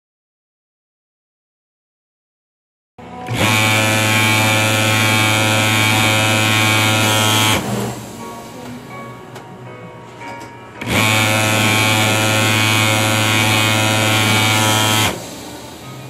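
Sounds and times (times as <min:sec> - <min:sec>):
sewing machine buzzing: 0:03.2 - 0:08.2, 0:10.8 - 0:15.8.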